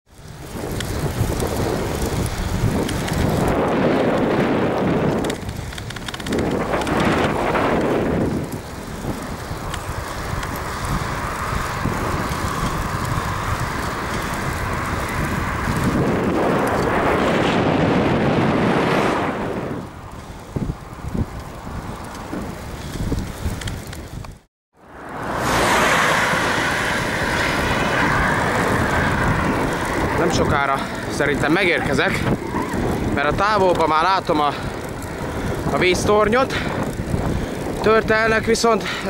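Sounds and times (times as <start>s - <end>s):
wind rushing over microphone: 0.1s - 39.0s.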